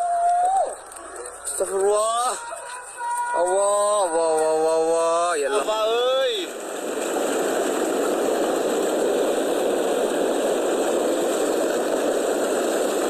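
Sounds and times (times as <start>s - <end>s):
mudflow rushing over boulders: 3.4s - 13.0s.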